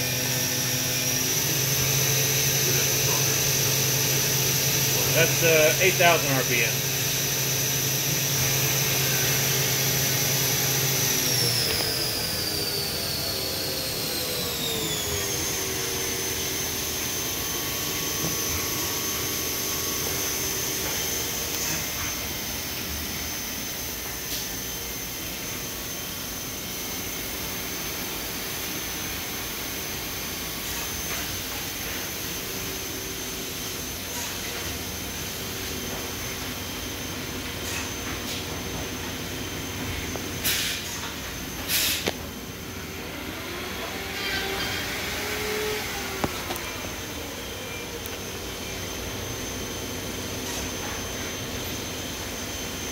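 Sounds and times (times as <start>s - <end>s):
spindle whine: 0.0s - 52.9s.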